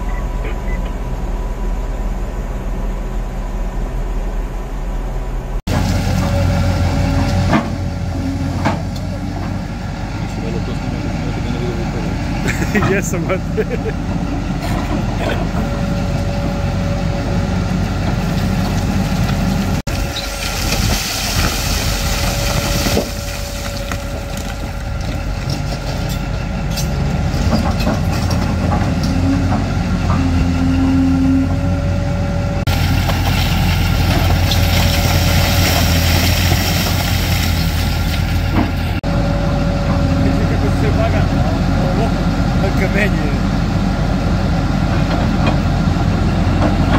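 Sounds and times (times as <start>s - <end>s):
excavator diesel engine running: 0.0s - 46.9s
rock pouring into steel truck bed: 19.9s - 24.6s.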